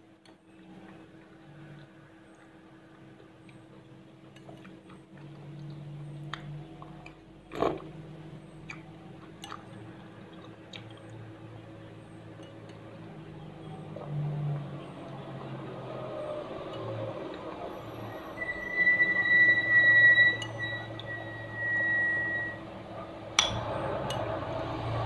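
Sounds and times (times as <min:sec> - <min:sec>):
chewing: 0:08.6 - 0:11.3
spoon clinking against bowl: 0:12.3 - 0:12.9, 0:20.3 - 0:21.2, 0:23.4 - 0:24.3.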